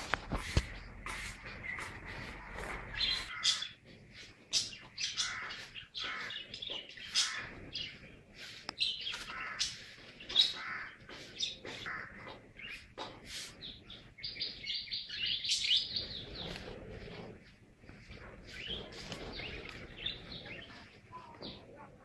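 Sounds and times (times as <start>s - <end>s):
small birds chirping: 0.0s - 22.0s.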